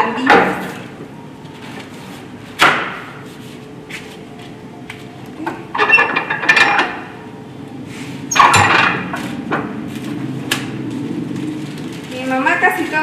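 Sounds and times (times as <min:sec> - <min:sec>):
plastic sheet rustling: 0:09.2 - 0:13.0.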